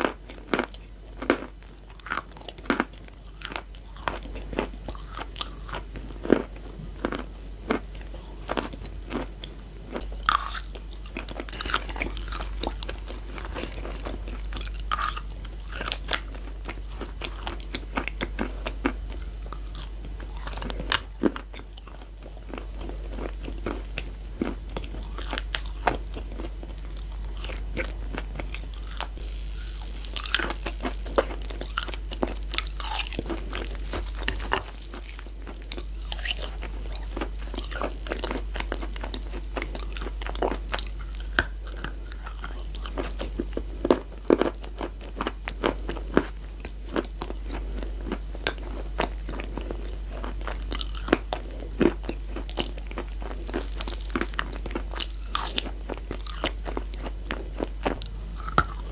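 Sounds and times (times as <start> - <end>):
chalk crunching while chewing: 0.0 - 58.9
low hum: 0.0 - 58.9.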